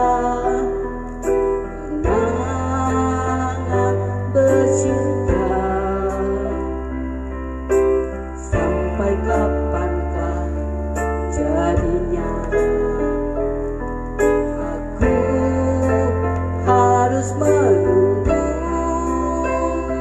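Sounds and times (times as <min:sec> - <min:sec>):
woman singing into microphone: 0:00.0 - 0:01.2, 0:01.8 - 0:06.8, 0:11.3 - 0:13.3, 0:14.7 - 0:20.0
electronic keyboard chords: 0:00.0 - 0:20.0.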